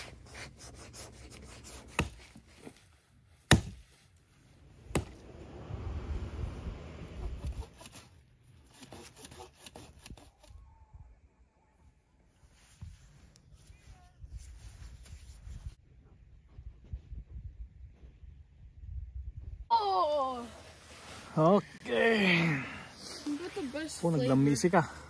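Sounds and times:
sawing wood: 0.0 - 2.8, 7.0 - 10.5
axe chopping wood: 1.9 - 2.3, 3.5 - 3.8, 4.9 - 5.2.

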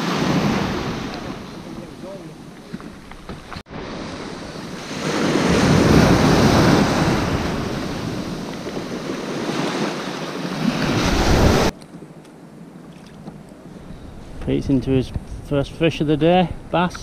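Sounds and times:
small waves breaking: 0.0 - 3.0, 3.6 - 11.7
wind on microphone: 0.0 - 11.7.

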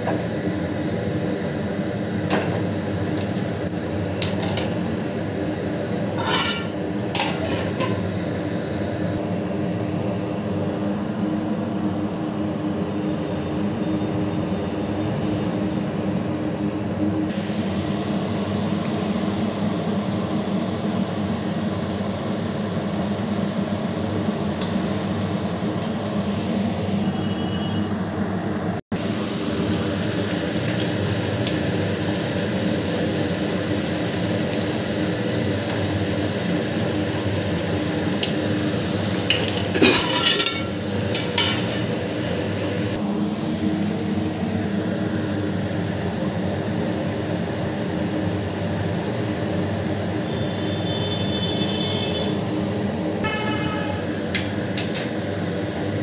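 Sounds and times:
metal pot and utensil clinking: 6.2 - 8.1, 39.3 - 41.8.

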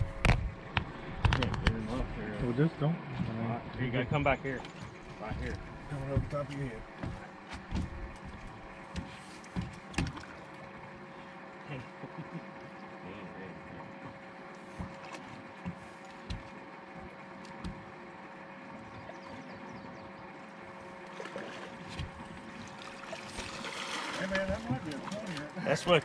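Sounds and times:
boat motor humming: 0.0 - 26.0
low thumps and knocks: 5.2 - 10.3.

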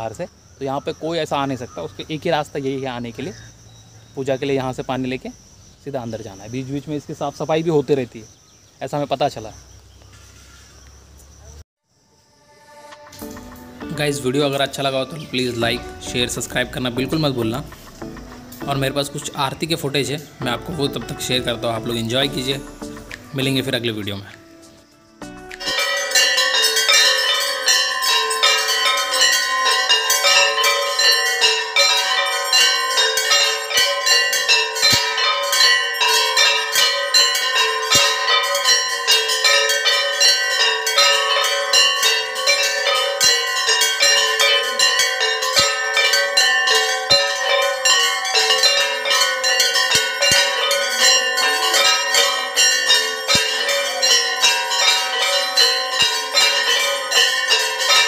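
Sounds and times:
hand bells clanging rapidly: 25.6 - 58.0.

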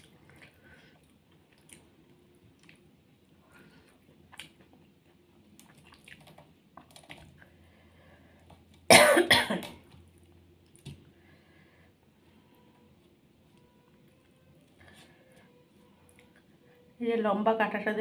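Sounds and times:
quiet chewing: 0.0 - 7.7, 9.8 - 11.5, 12.1 - 16.8
woman coughing: 8.9 - 9.8.

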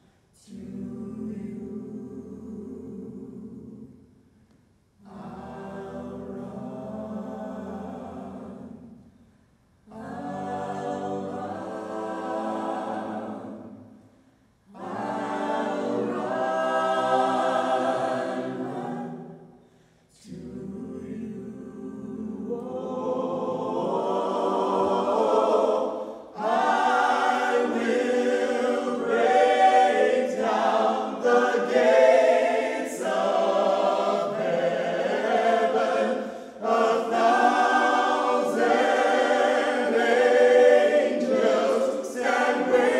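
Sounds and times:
mixed choir singing a cappella: 0.0 - 4.1, 5.0 - 9.2, 9.8 - 42.9.

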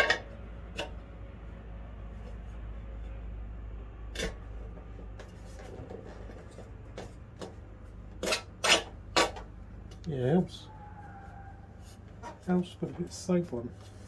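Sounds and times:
rubber and metal knocks and scrapes: 4.2 - 9.5, 11.8 - 14.0.

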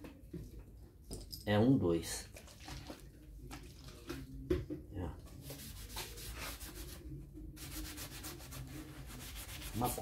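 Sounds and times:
sponge scrubbing leather: 7.6 - 10.0.

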